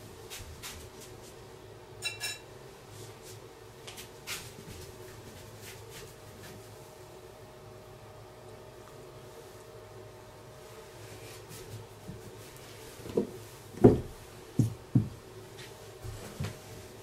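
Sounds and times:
faint steady hum: 0:00.0 - 0:17.0
tableware clicks and clinks: 0:02.0 - 0:02.5.

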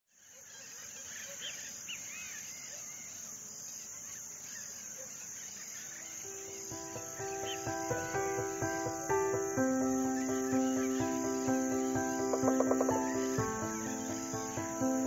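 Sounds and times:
bird chirps: 0:00.1 - 0:15.0
insects chirring: 0:00.2 - 0:15.0
background music: 0:06.3 - 0:15.0.

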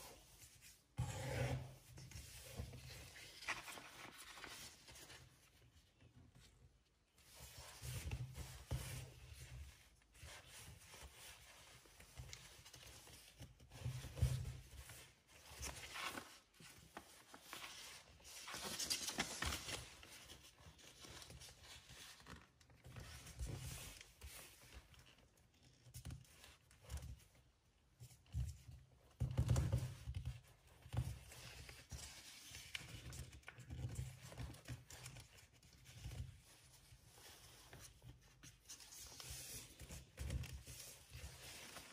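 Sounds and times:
paper rustling and crinkling: 0:01.9 - 0:05.7, 0:07.3 - 0:25.3, 0:30.8 - 0:41.9.

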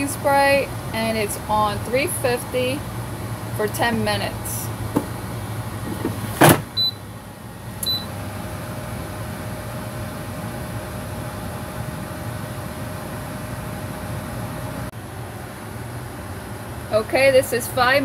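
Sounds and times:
air fryer fan humming: 0:00.0 - 0:18.0
control panel beeps: 0:06.8 - 0:07.0, 0:07.8 - 0:08.1.

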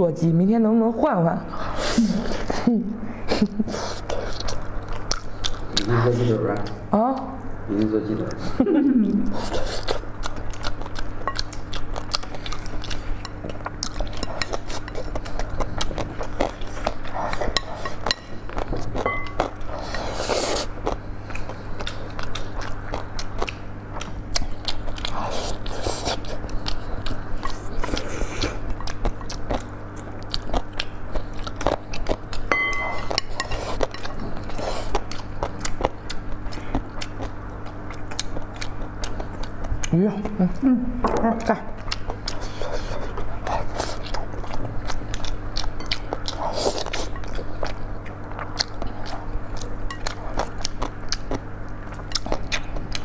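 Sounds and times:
steady low hum: 0:00.0 - 0:53.0
chewing and biting: 0:03.7 - 0:06.8, 0:09.2 - 0:40.6, 0:41.4 - 0:53.0
chopsticks clicking on bowls: 0:32.5 - 0:34.2.

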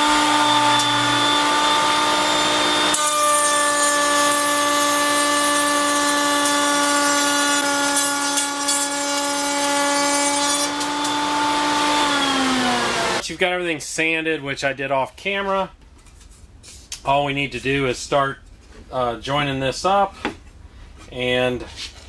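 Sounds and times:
router bit cutting wood hiss: 0:00.0 - 0:07.6, 0:10.5 - 0:13.2
router whining: 0:00.0 - 0:13.2.

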